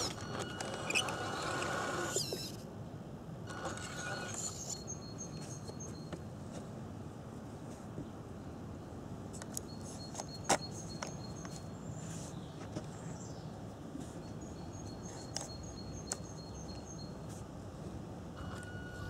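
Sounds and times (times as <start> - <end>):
bird chirping: 4.0 - 6.2, 9.6 - 17.4.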